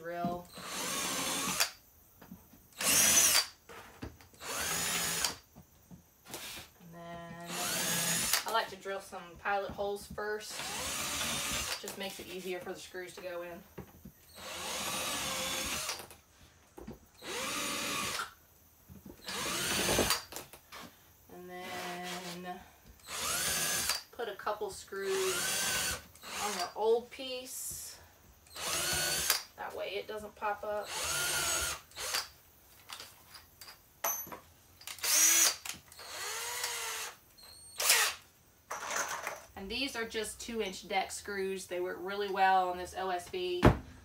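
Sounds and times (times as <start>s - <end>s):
cordless drill boring into wood: 0.5s - 1.8s, 2.8s - 3.5s, 4.4s - 5.4s, 7.5s - 8.6s, 10.5s - 11.8s, 14.3s - 16.1s, 17.2s - 18.4s, 19.2s - 20.3s, 21.6s - 22.4s, 23.0s - 24.1s, 25.0s - 26.8s, 28.5s - 29.5s, 30.8s - 32.3s, 34.8s - 38.2s.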